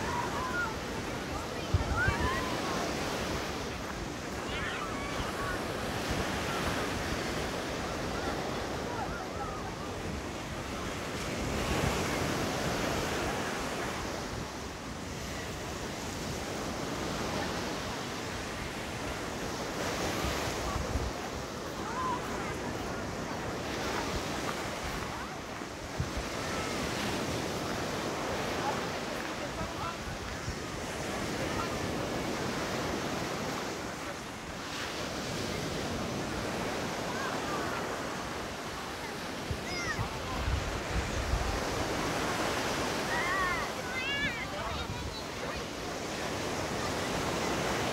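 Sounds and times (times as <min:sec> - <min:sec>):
wind buffeting microphone: 0:00.0 - 0:04.4
wind on microphone: 0:00.0 - 0:34.6, 0:37.4 - 0:47.9
waves breaking in surf: 0:00.0 - 0:47.9.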